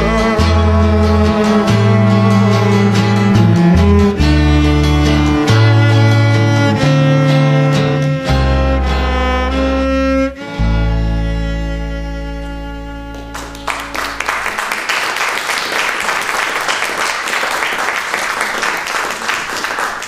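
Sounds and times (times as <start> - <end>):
audience applause: 13.1 - 20.0.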